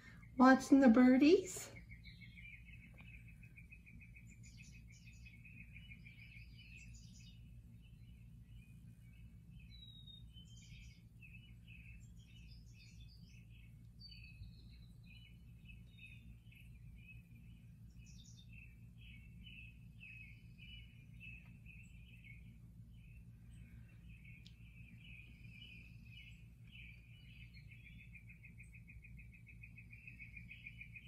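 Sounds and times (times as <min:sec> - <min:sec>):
birdsong through device speaker: 0:00.0 - 0:31.0
low steady hum: 0:00.0 - 0:31.0.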